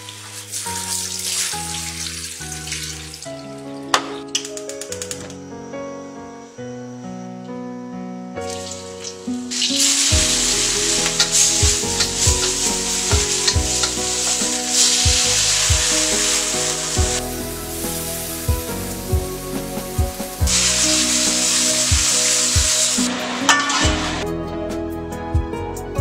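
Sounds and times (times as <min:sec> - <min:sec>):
shrimp sizzling in hot oil: 0:00.0 - 0:04.4, 0:08.4 - 0:24.2
background music with steady beat: 0:09.4 - 0:26.0.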